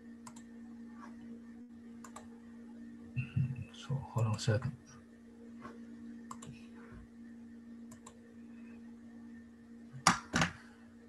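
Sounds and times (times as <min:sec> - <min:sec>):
steady low hum: 0:00.0 - 0:11.0
computer keys clicking: 0:00.2 - 0:00.5, 0:02.0 - 0:02.3, 0:06.3 - 0:06.6, 0:07.9 - 0:08.2.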